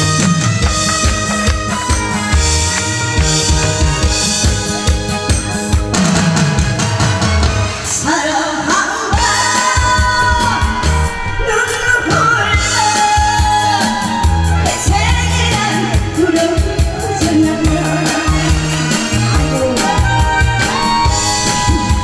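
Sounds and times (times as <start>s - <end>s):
backing music with drum beat: 0.0s - 22.0s
person singing: 7.9s - 22.0s.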